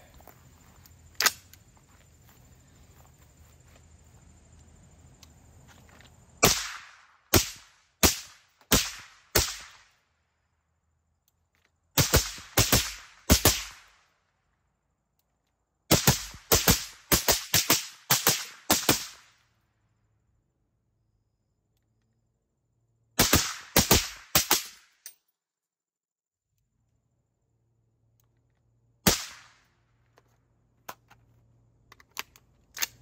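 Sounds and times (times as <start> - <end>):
suppressed gunshots: 29.0 - 29.6.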